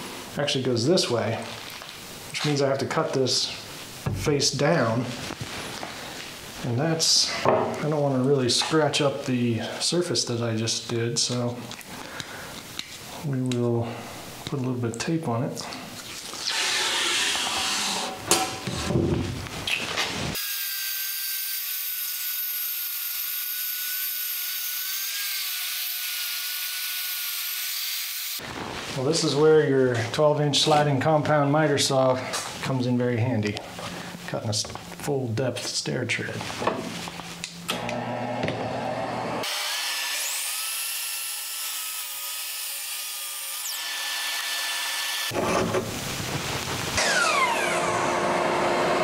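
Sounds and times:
table saw whining: 16.5 - 19.0, 37.7 - 46.2, 47.0 - 49.0
miter saw motor humming: 47.0 - 49.0.

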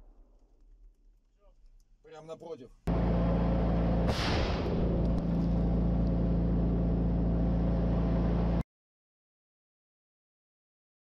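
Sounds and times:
vehicle engine drone: 2.9 - 8.6
mine explosion blast: 4.0 - 5.2.

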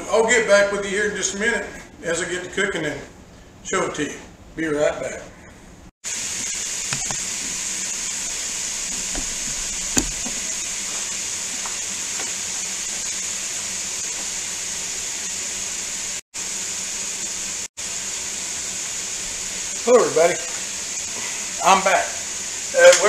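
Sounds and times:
bacon sizzling in oil: 6.1 - 23.0.

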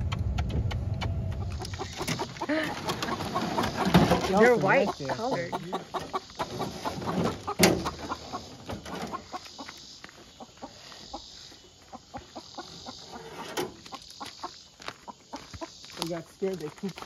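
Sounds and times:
hens clucking: 1.1 - 16.6.

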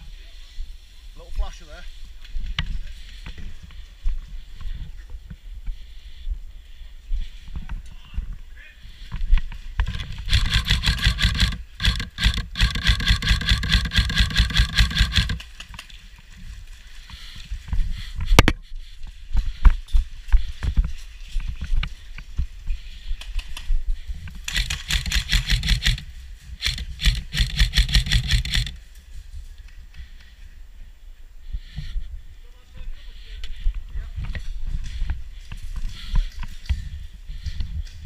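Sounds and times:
airsoft rifle firing full auto: 9.9 - 15.4, 24.4 - 28.8.

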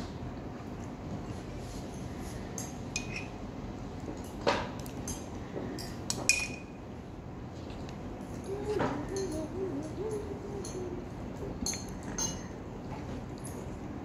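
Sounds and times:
metal spoon clinking on glass: 11.6 - 12.5.

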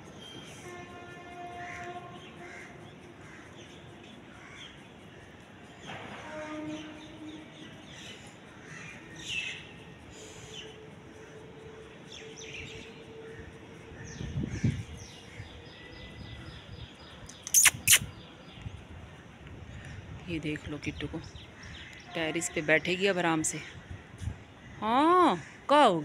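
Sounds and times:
small birds chirping: 6.8 - 18.8.

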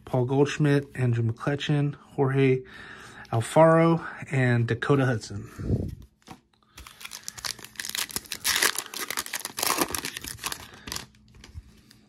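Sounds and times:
foil wrapper tearing and crinkling: 6.7 - 11.2.

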